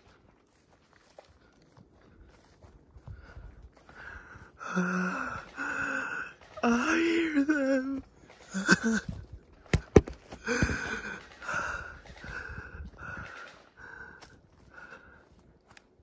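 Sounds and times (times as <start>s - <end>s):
person breathing hard: 1.2s - 7.2s, 10.2s - 15.7s.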